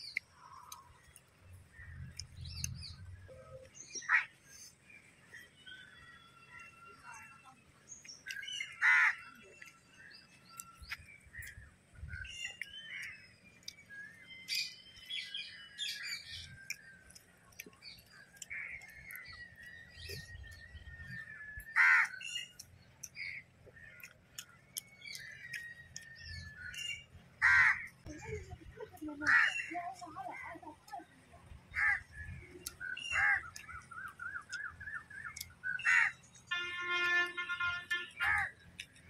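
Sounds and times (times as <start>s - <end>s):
small birds chirping and whistling: 0.0s - 27.2s, 31.6s - 39.0s
crows cawing: 4.0s - 4.3s, 8.8s - 9.3s, 21.7s - 22.2s, 27.4s - 27.9s, 29.3s - 29.7s, 31.7s - 32.2s, 33.0s - 33.8s, 35.7s - 36.2s, 38.2s - 38.5s.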